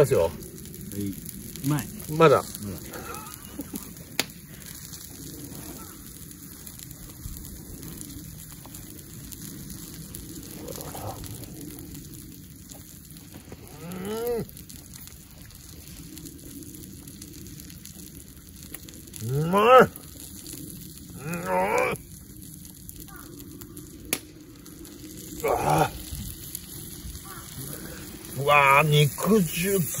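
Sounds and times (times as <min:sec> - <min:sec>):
man moaning mmm: 0:13.6 - 0:14.6, 0:19.2 - 0:20.0, 0:21.2 - 0:22.0, 0:25.4 - 0:26.1.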